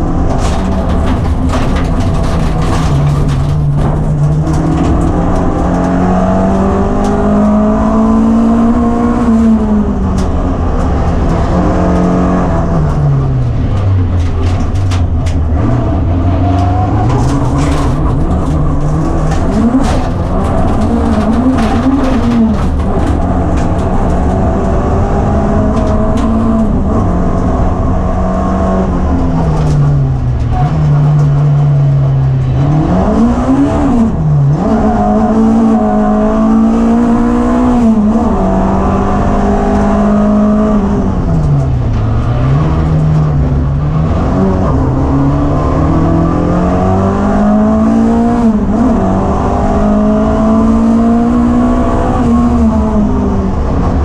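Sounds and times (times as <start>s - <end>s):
sharp clicks and rattles: 0.0s - 7.6s, 9.3s - 33.8s
racing car engine revving: 0.0s - 54.0s.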